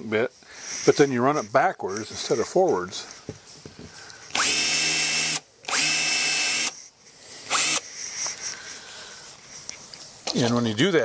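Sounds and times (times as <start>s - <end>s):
cordless drill whining: 4.3s - 6.8s, 7.4s - 7.9s.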